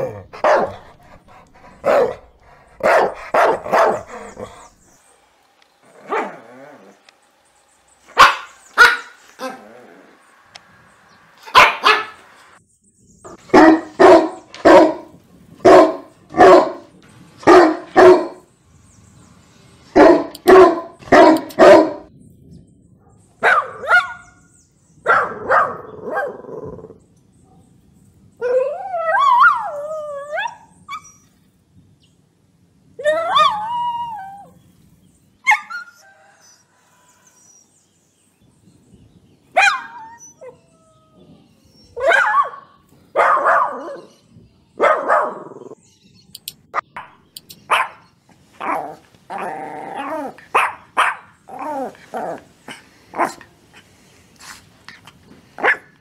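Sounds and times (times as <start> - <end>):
dogs barking angrily: 0.0 - 5.0, 5.9 - 7.1, 8.1 - 10.2, 11.4 - 12.6, 13.3 - 18.5, 20.0 - 22.1, 25.0 - 26.8, 42.0 - 44.1, 44.8 - 45.8, 46.8 - 54.1, 55.0 - 56.0
dog wavering cries: 33.0 - 34.6.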